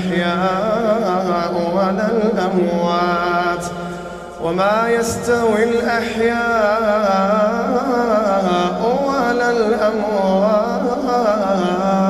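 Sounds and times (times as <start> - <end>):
man chanting: 0.0 - 12.0.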